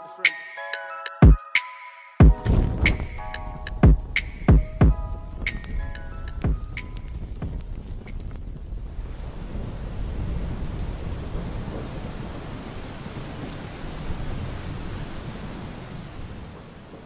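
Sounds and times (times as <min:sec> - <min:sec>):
steady rushing noise: 0:02.2 - 0:10.8
deep low rumble: 0:02.3 - 0:05.5.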